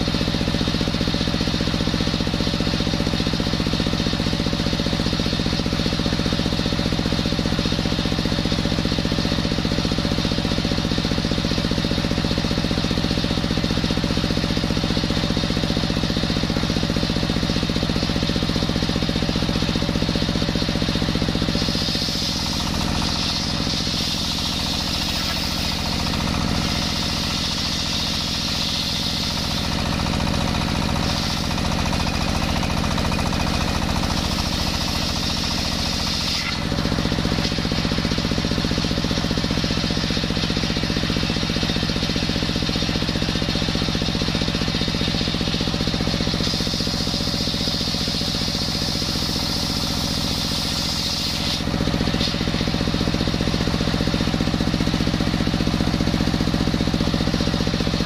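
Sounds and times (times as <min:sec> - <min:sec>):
diesel engine running: 0:00.0 - 0:58.0
circular saw cutting log: 0:19.1 - 0:53.7.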